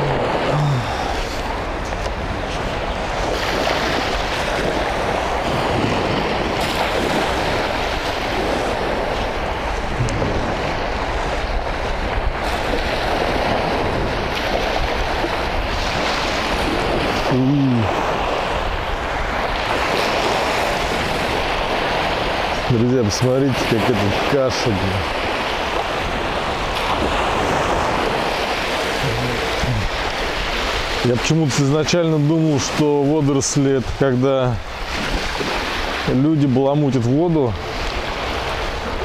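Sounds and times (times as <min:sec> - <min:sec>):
low voice-like hum: 0:00.0 - 0:01.6, 0:29.0 - 0:29.9
small waves washing onto sand: 0:00.0 - 0:39.0
wind blowing over microphone: 0:00.0 - 0:39.0.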